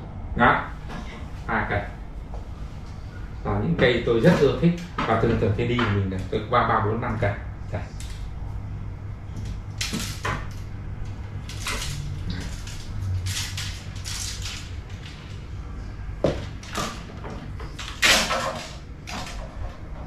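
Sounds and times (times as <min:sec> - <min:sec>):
fishing rods rustling and clacking: 0:11.5 - 0:15.6.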